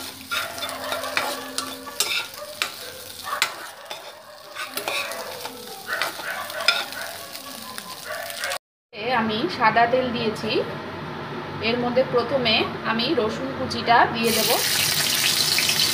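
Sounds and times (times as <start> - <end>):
oil sizzling: 0.0 - 8.6, 14.3 - 15.9
spatula scraping a pan: 0.0 - 8.6.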